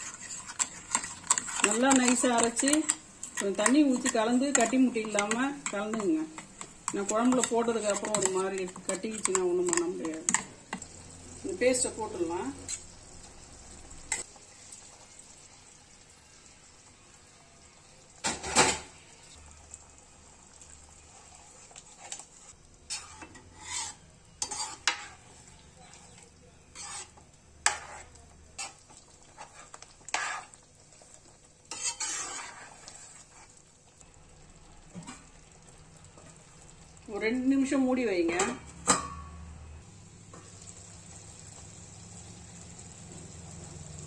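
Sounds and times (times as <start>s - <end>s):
ladle scraping a pan: 0.0s - 10.5s, 21.1s - 33.6s.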